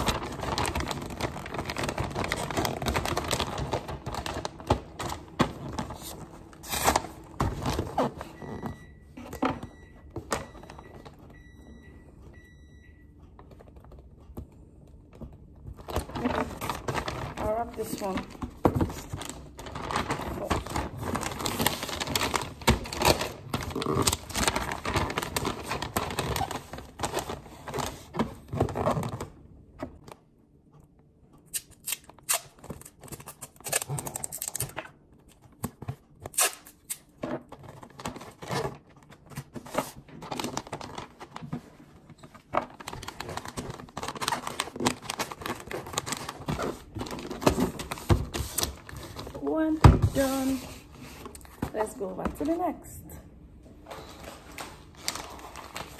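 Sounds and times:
wrapping paper rustling and crinkling: 0:00.0 - 0:08.7, 0:15.6 - 0:29.4, 0:31.8 - 0:52.9, 0:53.8 - 0:55.9.

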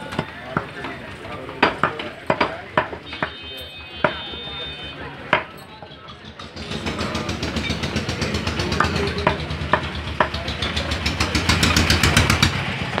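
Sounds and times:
cleaver chopping on wood: 0:01.5 - 0:03.4, 0:05.3 - 0:05.6, 0:08.7 - 0:10.4
rapid rattling knock: 0:06.1 - 0:12.6.

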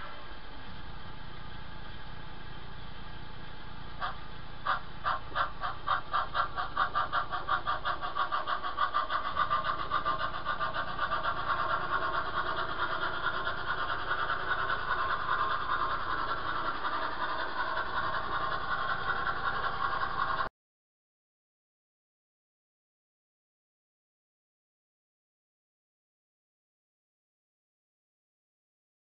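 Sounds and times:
model steam locomotive chuffing: 0:00.0 - 0:20.5.

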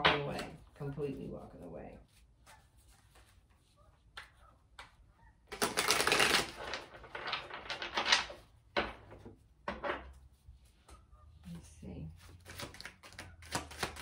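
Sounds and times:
cards tapping: 0:04.2 - 0:08.2, 0:12.5 - 0:14.0.

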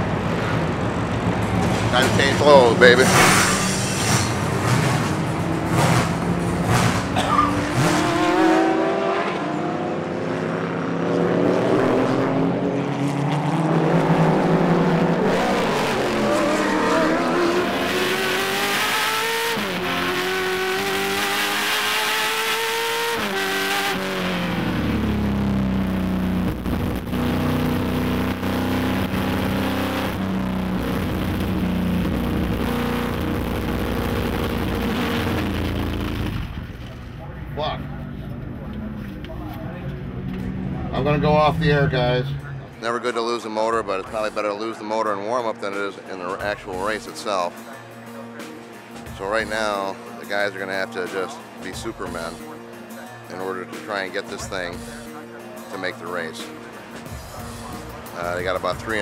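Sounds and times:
race car engine revving: 0:00.0 - 0:44.6.

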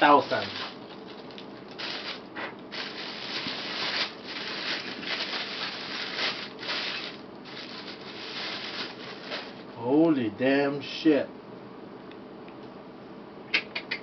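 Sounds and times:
plastic bag crinkling: 0:00.0 - 0:09.8.

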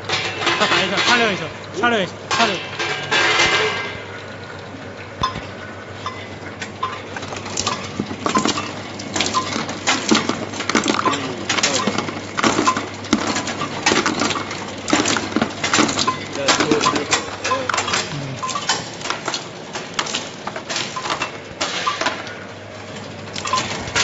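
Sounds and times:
machine humming: 0:00.0 - 0:24.0
nuts clattering into plastic basin: 0:08.2 - 0:22.2.

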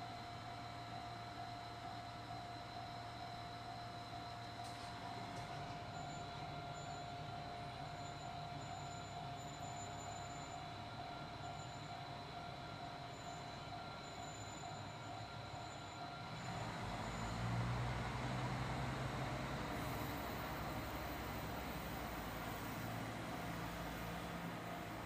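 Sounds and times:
diesel railcar running: 0:00.0 - 0:25.0
thin mechanical whine: 0:00.0 - 0:25.0.

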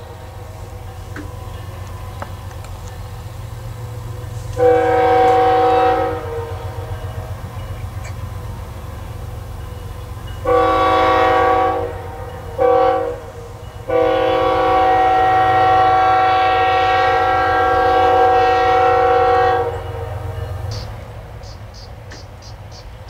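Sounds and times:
passing train rumble: 0:00.0 - 0:23.0
locomotive air horn blasts: 0:04.0 - 0:07.3, 0:10.4 - 0:20.9.

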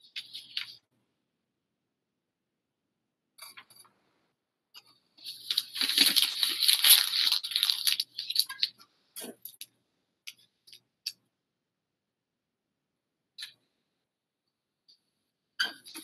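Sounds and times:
paper crinkling: 0:00.0 - 0:00.8, 0:05.2 - 0:09.6.

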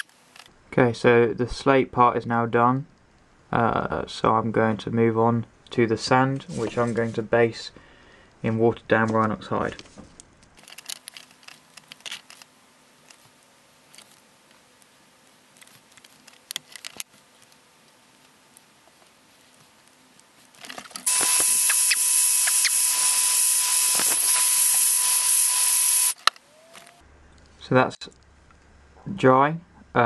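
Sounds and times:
hair dryer blowing: 0:21.0 - 0:26.2.

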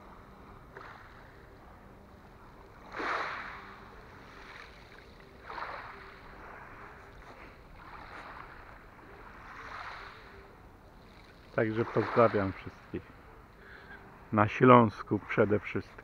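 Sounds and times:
waves lapping on pebbles: 0:02.8 - 0:10.4, 0:11.0 - 0:12.8.

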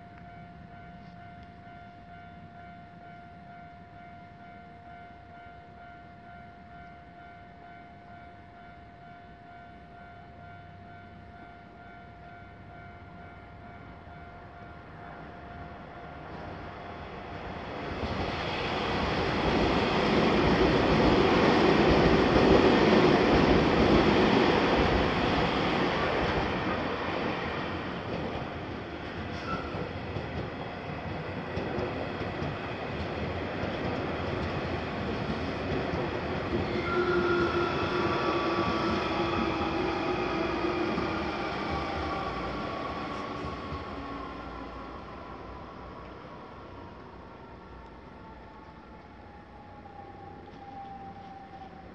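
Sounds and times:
level-crossing warning bell: 0:00.0 - 0:51.9
train wheels rumbling on rails: 0:16.2 - 0:47.6.

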